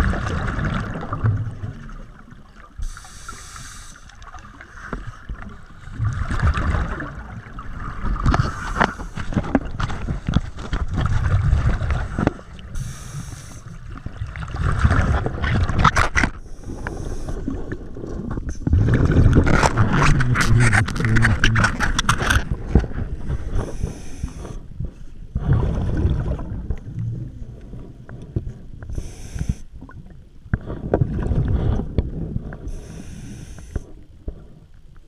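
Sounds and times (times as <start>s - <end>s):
hissing regulator inhalations: 2.8s - 4.1s, 12.8s - 13.7s, 23.6s - 24.6s, 28.9s - 29.7s, 32.7s - 33.9s
bubbling underwater exhalations: 17.4s - 22.4s, 25.3s - 27.5s.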